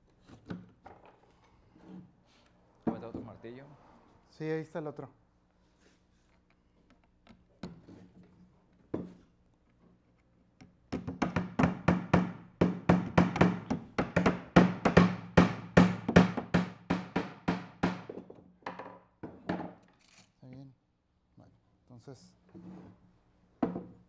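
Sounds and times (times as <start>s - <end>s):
hammers tapping nails into wood: 10.6s - 19.8s.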